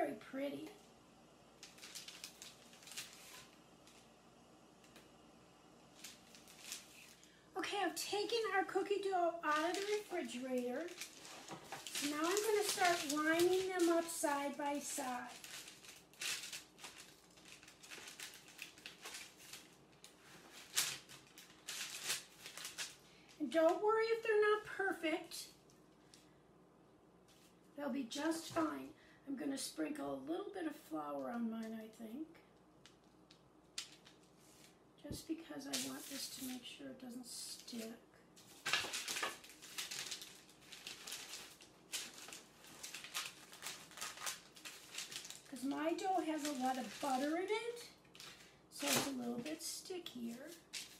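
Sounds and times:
spatula scraping parchment paper: 8.3 - 17.0, 39.1 - 47.9.

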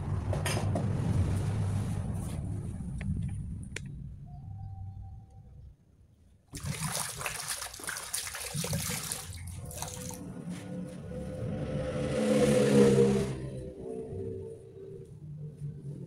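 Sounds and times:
water running onto metal bowl: 6.6 - 10.2.

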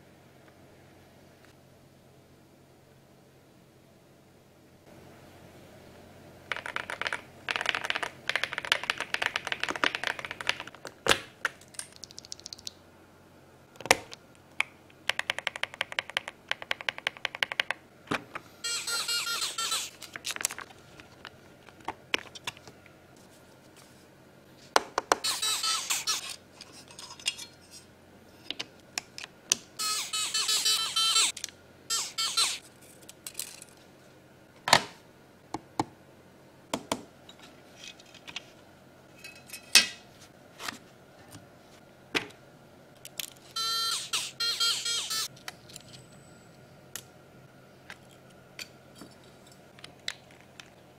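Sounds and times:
high-pitched scraping: 18.6 - 20.0, 25.2 - 26.8, 31.9 - 32.6.

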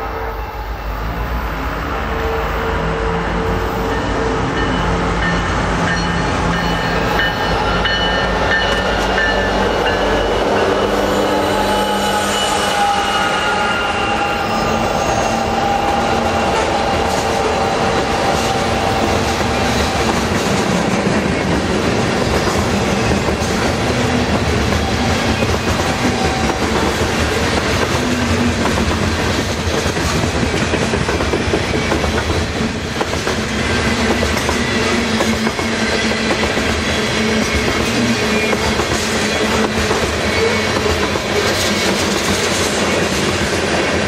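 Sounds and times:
train wheels rumbling on rails: 0.0 - 44.0
clickety-clack over rail joints: 17.0 - 44.0.

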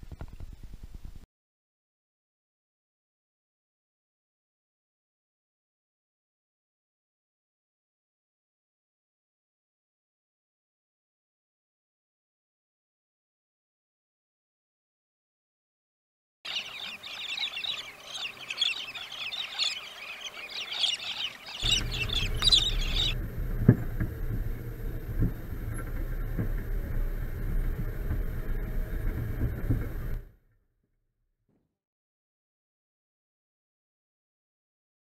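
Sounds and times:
birds chattering and chirping: 16.5 - 26.2
car knocking over bumps: 21.6 - 30.2
car engine and road rumble: 21.6 - 30.3.

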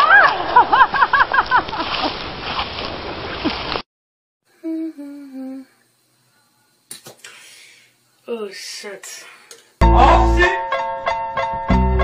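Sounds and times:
person humming short notes: 4.6 - 5.7.

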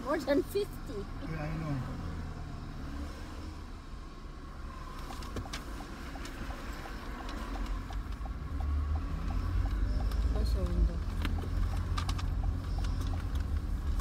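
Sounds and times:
car engine humming: 0.0 - 14.0
car indicator ticking: 4.7 - 14.0.

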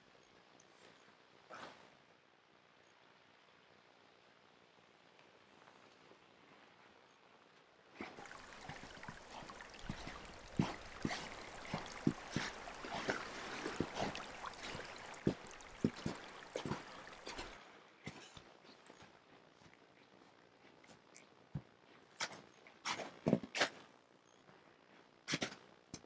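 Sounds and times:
creek running and trickling: 8.1 - 19.1.

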